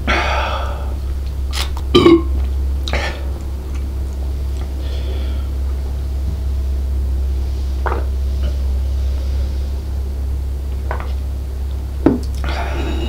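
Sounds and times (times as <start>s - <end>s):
steady low hum: 0.0s - 13.0s
man gulping beer: 7.8s - 8.7s, 10.7s - 11.2s.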